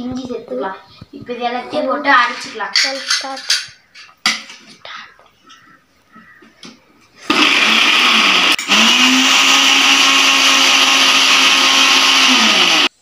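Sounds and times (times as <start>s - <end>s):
electric mixer grinder whining: 7.2s - 13.0s.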